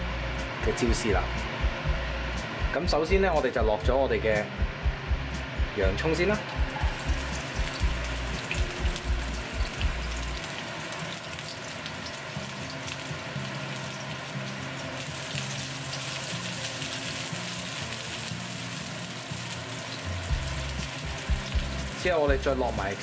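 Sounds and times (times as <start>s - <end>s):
onion sizzling in oil: 6.5s - 23.0s.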